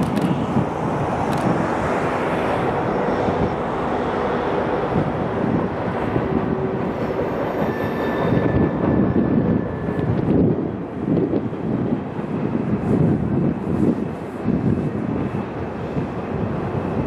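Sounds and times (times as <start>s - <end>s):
train wheels rumbling on rail: 0.0s - 17.0s
faint thin wheel squeal: 7.5s - 10.2s.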